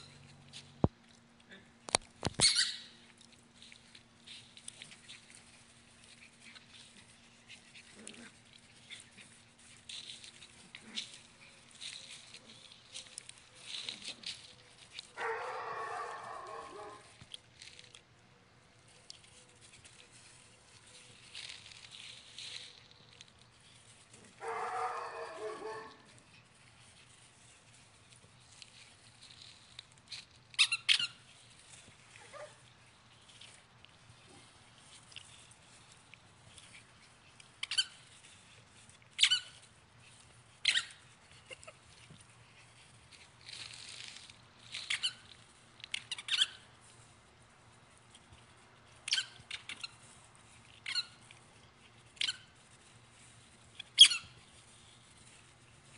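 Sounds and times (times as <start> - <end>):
puppy yipping: 2.4 - 3.0, 15.2 - 17.1, 24.4 - 26.1, 30.5 - 32.6, 39.2 - 39.7, 40.6 - 41.8, 44.7 - 46.7, 49.0 - 51.3, 52.1 - 55.4
puppy play growl: 4.6 - 17.1, 23.5 - 26.5
light scrabbling and clicking: 18.7 - 55.9.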